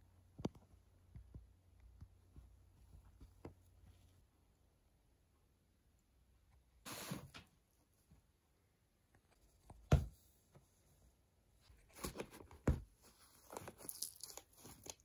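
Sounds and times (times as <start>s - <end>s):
paper rustling and crinkling: 11.8s - 15.0s.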